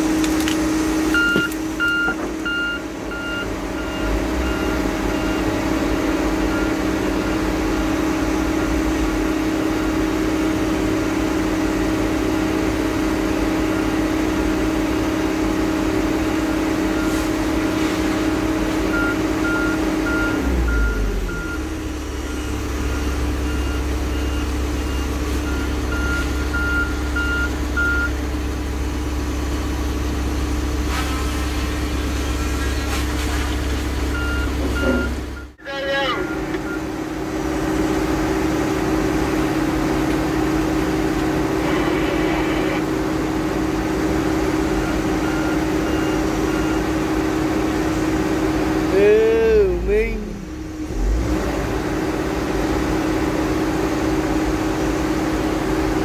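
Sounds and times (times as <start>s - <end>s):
heavy diesel equipment running: 0.0s - 56.0s
back-up alarm beeping: 1.1s - 5.6s, 18.9s - 28.2s, 34.1s - 37.0s.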